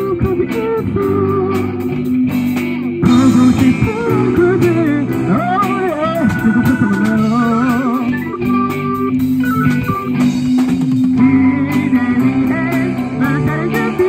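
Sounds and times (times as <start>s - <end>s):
person singing: 0.0s - 2.0s, 2.7s - 8.9s, 11.2s - 14.0s
bass guitar: 0.0s - 14.0s
drums with cymbal beat: 0.0s - 14.0s
electric guitars: 0.0s - 14.0s.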